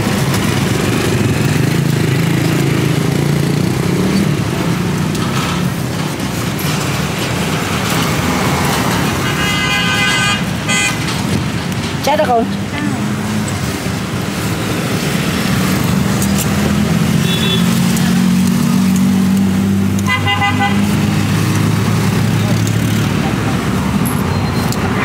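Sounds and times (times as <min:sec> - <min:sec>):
vehicle engines rumbling: 0:00.0 - 0:25.0
vehicle horn: 0:09.2 - 0:11.0, 0:17.2 - 0:17.7, 0:20.0 - 0:20.9.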